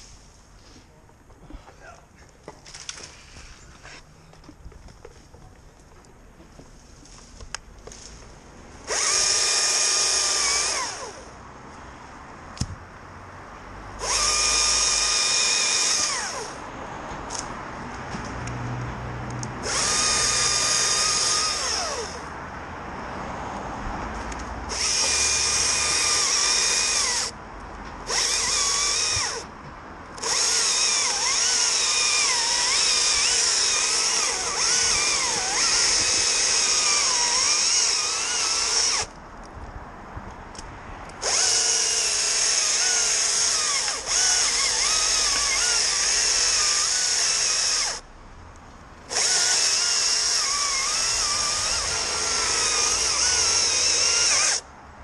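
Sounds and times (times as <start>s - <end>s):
chainsaw cutting: 8.8s - 11.3s, 14.0s - 16.6s, 19.6s - 22.3s, 24.7s - 27.4s, 28.0s - 29.5s, 30.2s - 39.1s, 41.2s - 48.0s, 49.1s - 54.6s.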